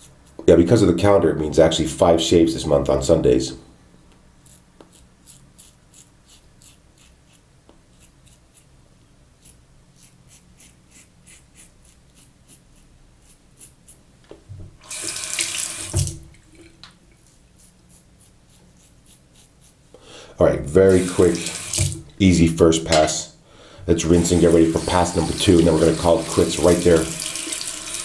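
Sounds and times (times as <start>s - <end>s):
razor scraping stubble: 4.4s - 8.8s, 9.4s - 14.1s, 17.2s - 19.8s, 20.8s - 22.4s, 24.0s - 28.0s
tap running: 14.5s - 17.0s, 21.0s - 22.2s.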